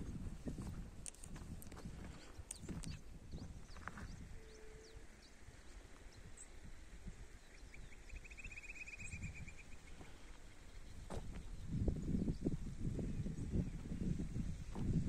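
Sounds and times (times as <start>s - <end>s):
wind noise on microphone: 0.0s - 15.0s
faint high chirps: 7.4s - 9.9s
rapid bird trill: 7.7s - 9.9s.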